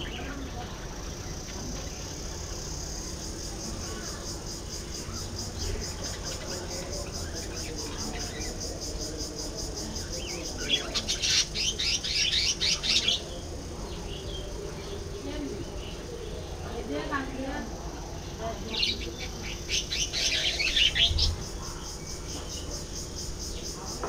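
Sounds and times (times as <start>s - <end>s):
budgerigars chattering: 9.9s - 14.6s, 18.2s - 23.7s.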